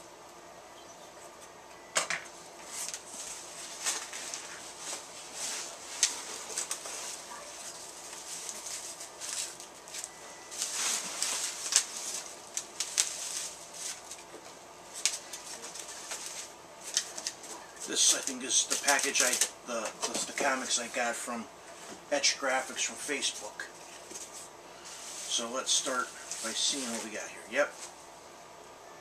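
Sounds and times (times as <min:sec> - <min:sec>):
packing peanuts and plastic rustling: 0:02.6 - 0:21.2, 0:23.1 - 0:28.0.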